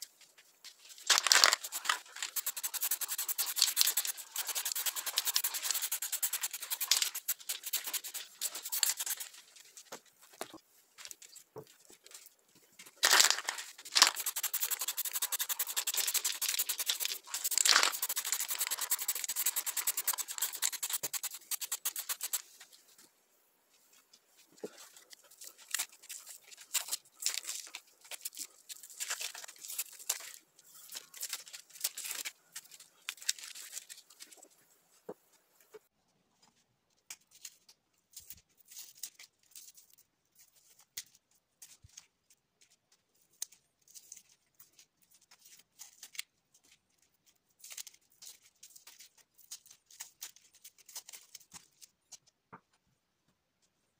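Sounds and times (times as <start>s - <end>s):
spray paint can hissing: 1.6s - 9.2s, 13.9s - 22.4s.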